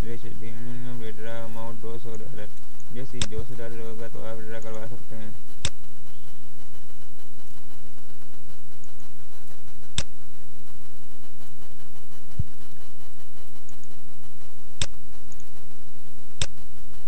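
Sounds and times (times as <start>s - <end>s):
low electrical hum: 0.0s - 17.0s
computer mouse clicks: 2.5s - 3.4s.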